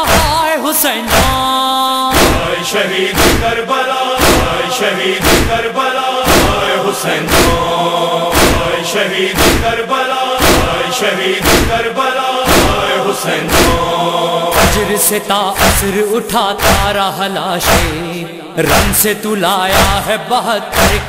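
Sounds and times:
men chanting a lament: 0.0s - 21.0s
chest-beating thuds: 1.1s - 1.5s, 2.1s - 3.6s, 4.2s - 7.7s, 8.3s - 9.8s, 10.4s - 15.0s, 15.6s - 16.0s, 16.6s - 17.0s, 17.6s - 18.0s.

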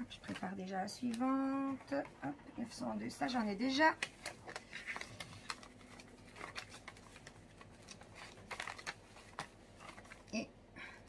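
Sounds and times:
paper envelopes rustling: 3.0s - 10.4s.

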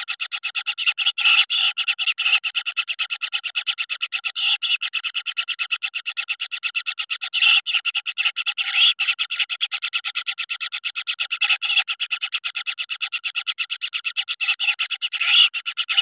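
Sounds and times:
nestlings begging call: 7.4s - 9.5s, 14.4s - 16.0s.

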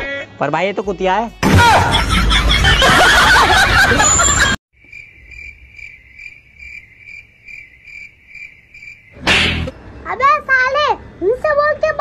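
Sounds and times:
cricket chirping: 4.8s - 9.2s.

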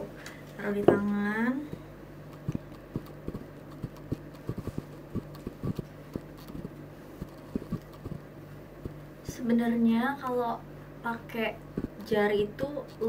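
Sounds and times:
fingertips tapping on face: 1.7s - 9.4s, 11.7s - 13.0s.

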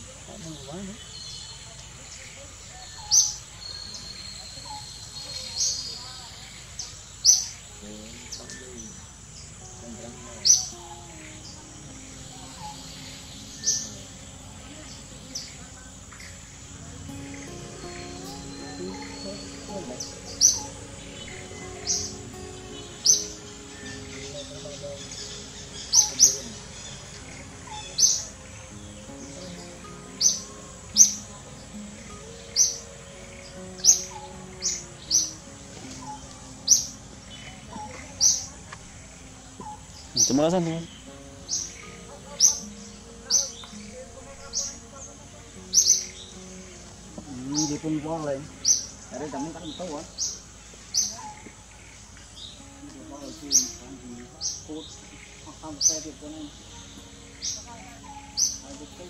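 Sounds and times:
faint chirps: 0.0s - 59.0s
faint low background music: 0.0s - 59.0s
faint low voices: 0.0s - 59.0s
loud high-pitched chirp: 10.4s - 38.4s.

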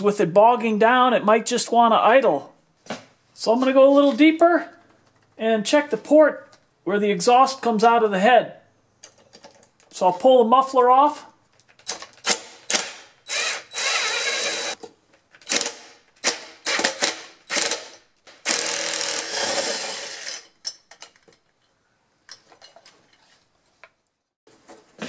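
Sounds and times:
cordless driver spinning bolts: 12.2s - 14.8s.

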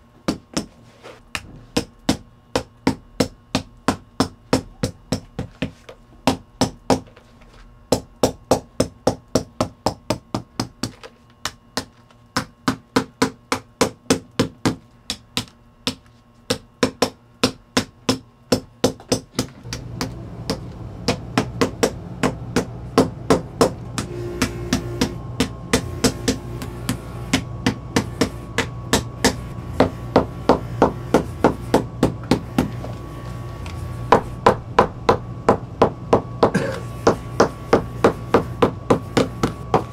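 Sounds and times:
hammer tapping: 7.9s - 32.9s, 34.1s - 39.9s
machine hum: 19.2s - 39.9s.

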